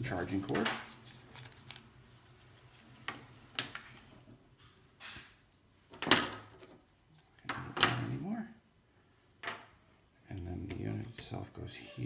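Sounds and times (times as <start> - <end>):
hands handling cardboard packaging: 0.3 - 4.4.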